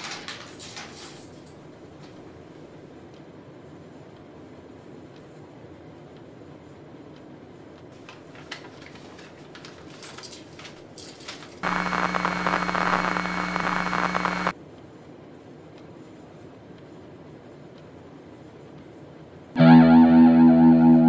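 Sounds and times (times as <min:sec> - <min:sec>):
paper rustling and crumpling: 0:08.0 - 0:11.6
buzzing hum: 0:11.6 - 0:14.5
harsh static noise: 0:11.6 - 0:14.5.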